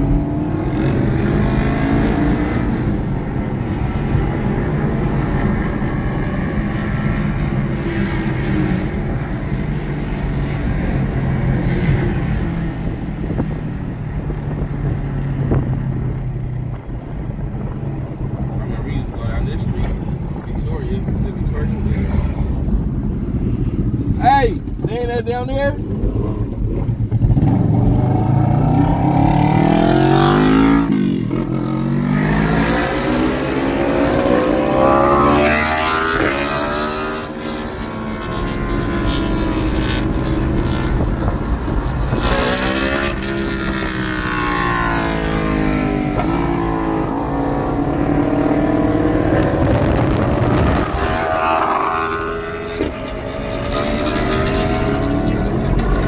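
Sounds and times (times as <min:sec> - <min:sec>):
vehicle engines revving and passing: 0:00.0 - 0:56.0.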